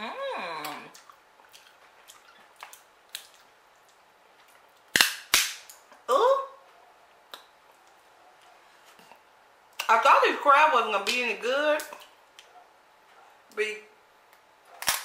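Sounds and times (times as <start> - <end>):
crab shells cracking: 4.8 - 5.8.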